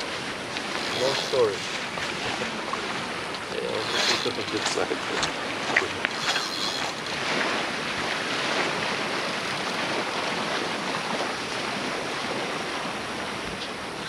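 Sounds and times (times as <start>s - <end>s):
ocean surf washing: 0.0s - 14.0s.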